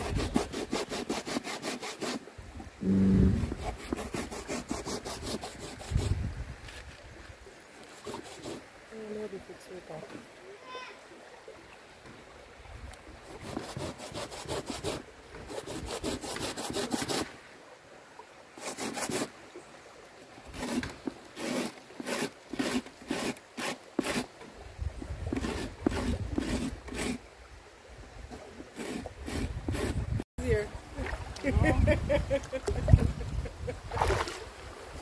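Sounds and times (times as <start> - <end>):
rasping scraping strokes: 0.0 - 2.2, 2.8 - 6.9, 7.8 - 8.6, 13.3 - 17.3, 18.6 - 19.3, 20.5 - 24.3, 25.3 - 27.2, 28.7 - 30.2.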